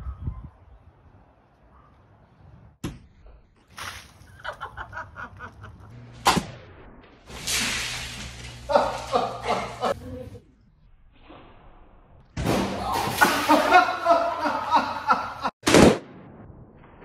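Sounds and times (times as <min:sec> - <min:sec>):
sharp smack: 0:06.2 - 0:06.6.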